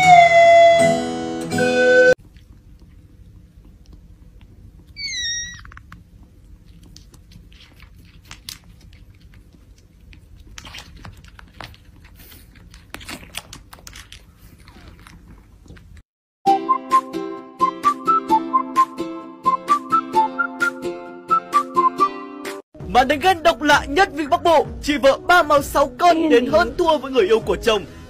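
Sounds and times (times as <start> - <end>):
kitten mewing: 5.0 - 6.0.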